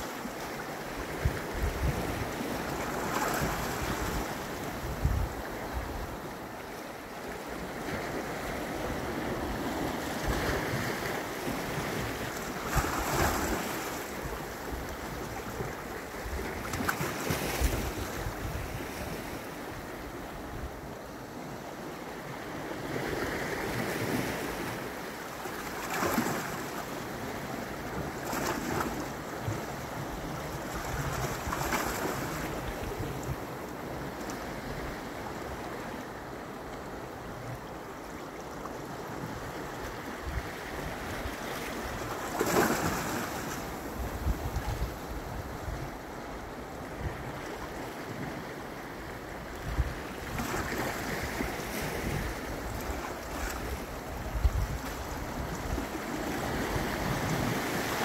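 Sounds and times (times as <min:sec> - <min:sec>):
sea waves washing over rocks: 0:00.0 - 0:20.1, 0:39.3 - 0:58.0
wind buffeting microphone: 0:01.0 - 0:06.2, 0:43.7 - 0:46.0, 0:49.6 - 0:58.0.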